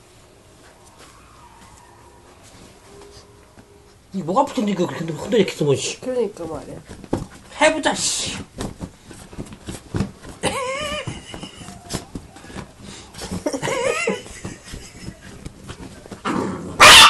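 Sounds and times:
fabric rustling: 0.0 - 16.8
puppy whining yips: 0.9 - 2.4, 16.8 - 17.0.

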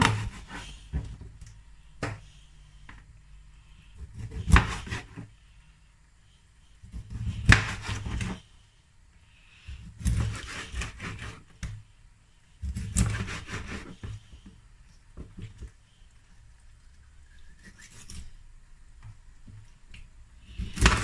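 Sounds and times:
knife sawing through fish: 0.0 - 0.8, 10.0 - 11.4, 12.6 - 14.2.

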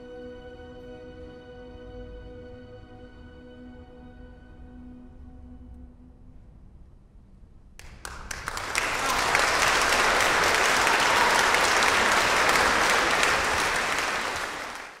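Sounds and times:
audience applause: 7.8 - 15.0.

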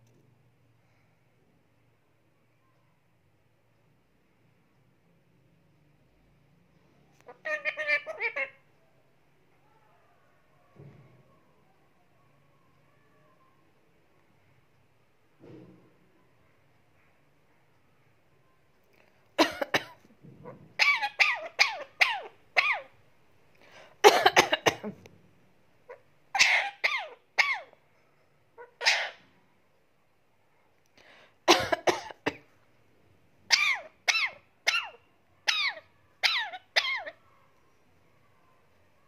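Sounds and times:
parakeet giving sharp calls: 7.3 - 8.6, 20.7 - 23.0, 25.9 - 27.8, 28.6 - 29.2, 33.5 - 37.2.

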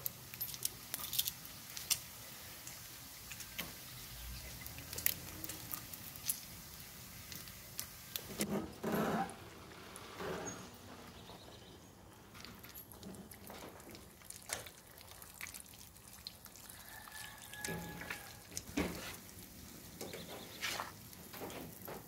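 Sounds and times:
bacon sizzling in a pan: 0.0 - 8.4.

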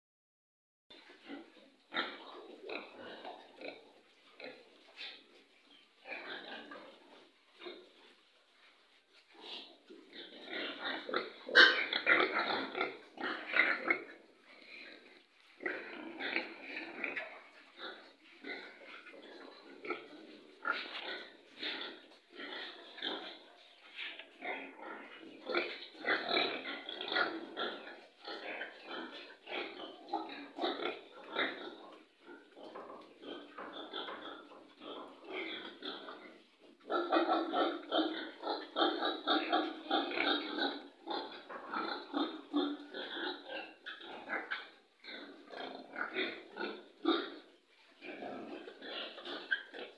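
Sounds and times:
pigs grunting: 1.2 - 8.1, 9.3 - 49.9.

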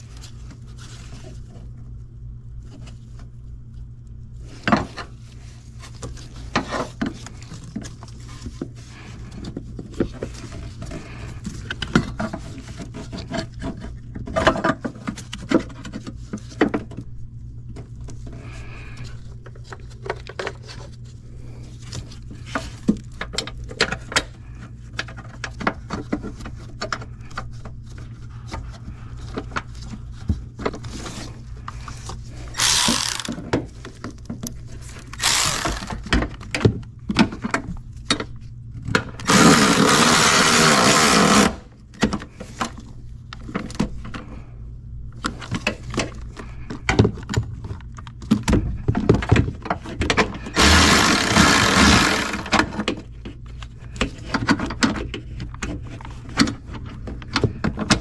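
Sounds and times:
steady low hum: 0.0 - 58.0
cordless ratchet running: 32.5 - 33.4, 35.1 - 36.0, 39.2 - 41.6, 50.5 - 52.6.

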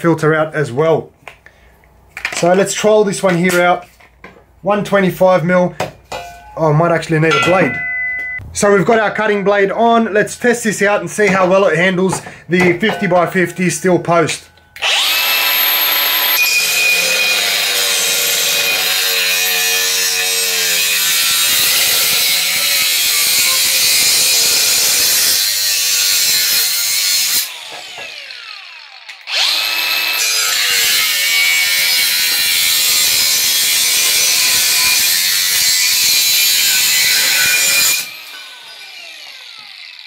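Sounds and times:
angle grinder cutting steel: 14.3 - 40.0
grinder disc winding down: 14.8 - 19.7, 36.6 - 40.0.

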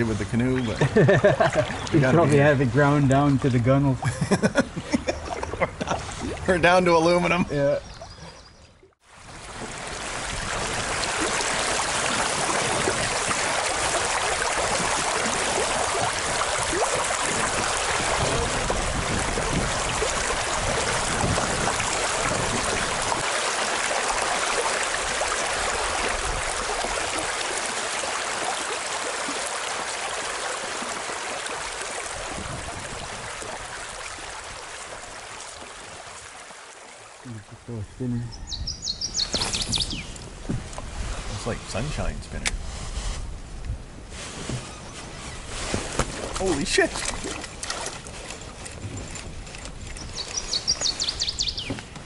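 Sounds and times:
river water rushing: 9.1 - 37.2.

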